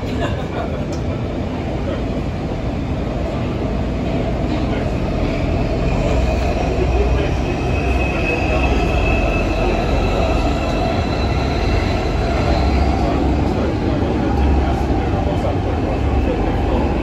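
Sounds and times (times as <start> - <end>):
train wheels rumbling on rails: 0.0 - 17.0
high-pitched squeal: 5.2 - 14.0.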